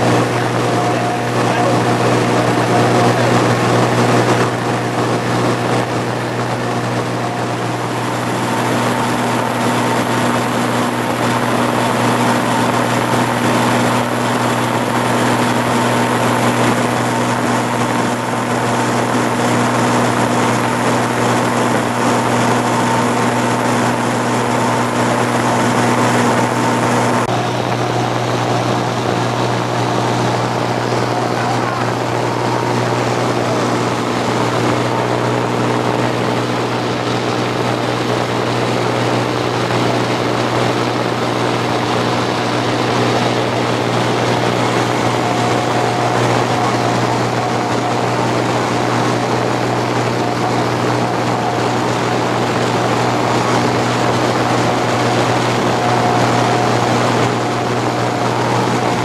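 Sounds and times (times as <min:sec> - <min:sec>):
light aircraft engine droning: 0:00.0 - 0:59.0.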